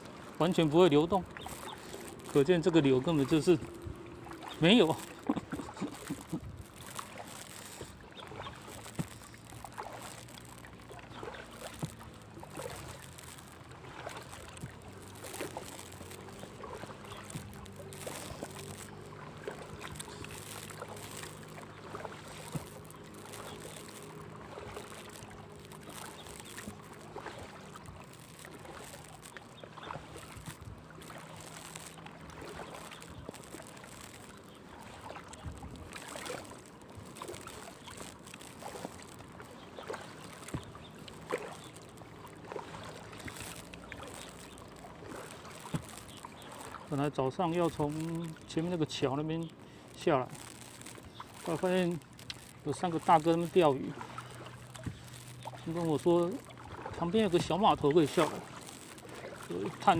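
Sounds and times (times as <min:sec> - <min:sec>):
paddle splashing water: 0:00.0 - 0:59.9
water dripping: 0:00.0 - 0:59.9.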